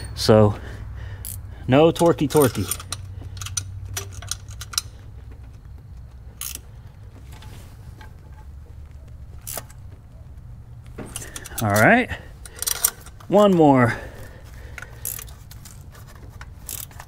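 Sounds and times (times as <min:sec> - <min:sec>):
low steady hum: 0:00.0 - 0:17.0
metal clicks of hand tools: 0:01.2 - 0:06.6, 0:09.4 - 0:09.8, 0:10.8 - 0:13.7, 0:14.7 - 0:17.0.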